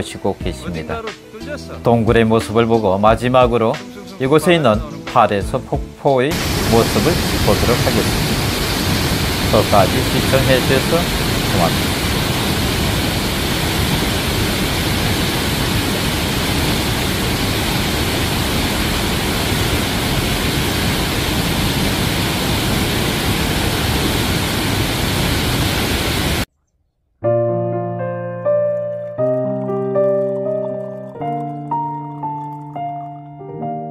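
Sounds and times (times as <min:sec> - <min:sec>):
piano music: 0:00.0 - 0:08.2, 0:09.5 - 0:11.8, 0:27.2 - 0:33.9
waterfall rushing: 0:06.3 - 0:26.5.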